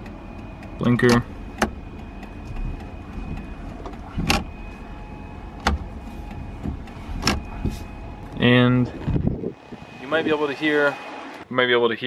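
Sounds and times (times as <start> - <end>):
turn signal flasher clicking: 0.0 - 8.4
electric fan whine: 0.0 - 11.5.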